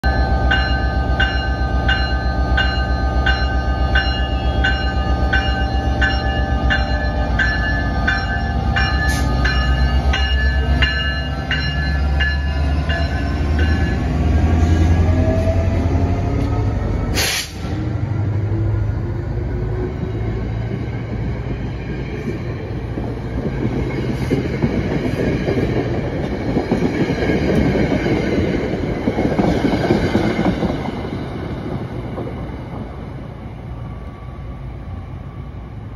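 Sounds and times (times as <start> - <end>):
crossing bells ringing: 0.0 - 14.9
diesel locomotive running under load: 0.0 - 35.9
short burst of hiss: 17.2 - 17.7.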